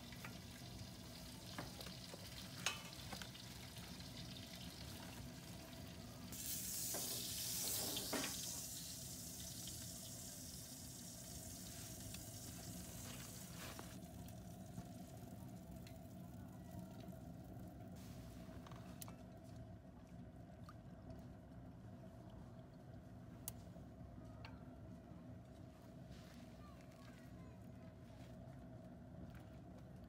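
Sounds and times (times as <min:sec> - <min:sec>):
pork sizzling on metal tray: 0:00.0 - 0:14.0.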